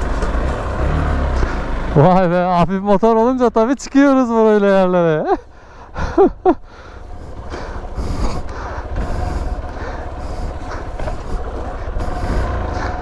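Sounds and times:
motorcycle engine under load: 0.0 - 4.2, 5.3 - 13.0.

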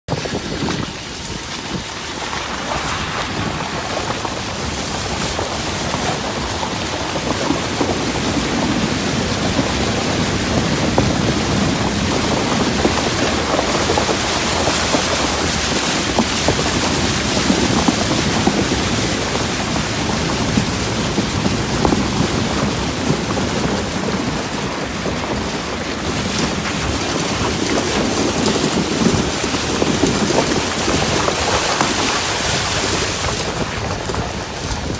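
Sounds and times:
wheels splashing through floodwater: 0.1 - 34.9
wind on microphone: 0.1 - 34.9.

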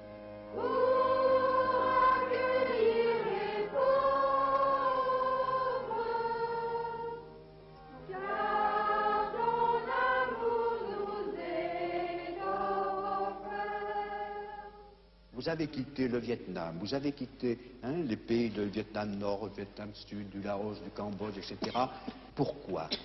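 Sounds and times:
choir singing a hymn: 0.0 - 14.9.

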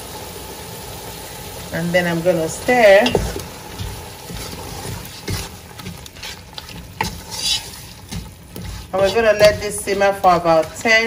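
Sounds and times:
sauce sizzling in oil: 0.0 - 11.0
wooden spoon scraping a pot: 2.8 - 11.0.

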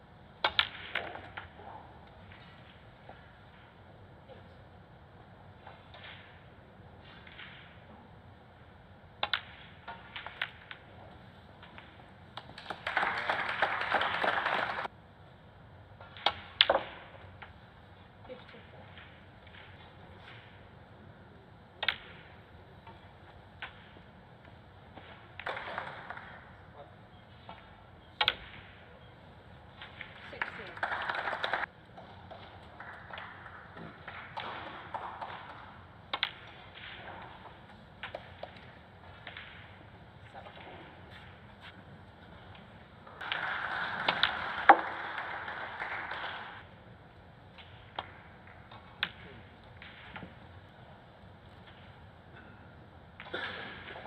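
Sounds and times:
snooker balls clicking: 9.1 - 14.9, 21.7 - 29.0, 29.6 - 46.8, 47.4 - 52.4
audience applause: 12.4 - 14.9, 30.4 - 31.7, 43.1 - 46.6
snooker balls knocking together: 24.9 - 26.6.

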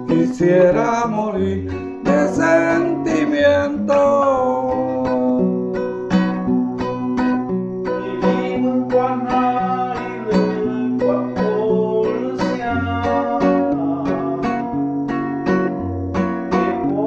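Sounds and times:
acoustic guitar strumming: 0.0 - 17.0.

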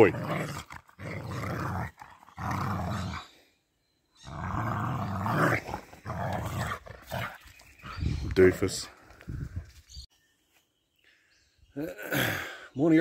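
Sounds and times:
dog growling: 0.0 - 3.4, 4.2 - 8.0.

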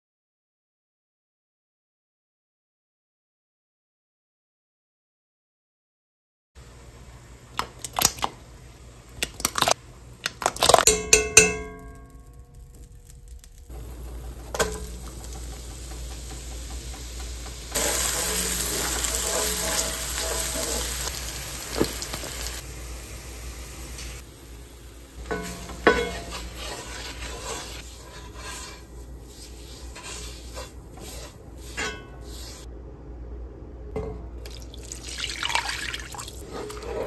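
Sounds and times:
onions sizzling in butter: 11.8 - 32.7
wooden spoon scraping skillet: 13.5 - 22.6, 25.2 - 32.7, 36.2 - 37.0.

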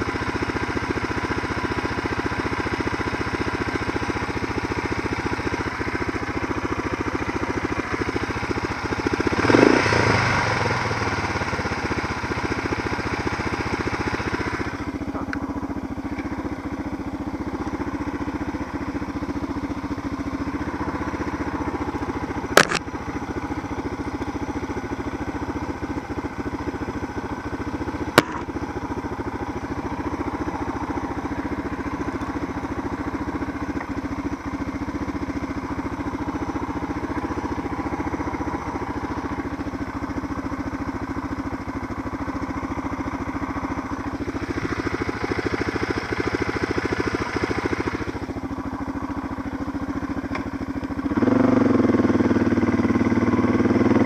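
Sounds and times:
motorcycle engine idling: 0.0 - 54.0
sharp clicks: 22.6 - 22.9.

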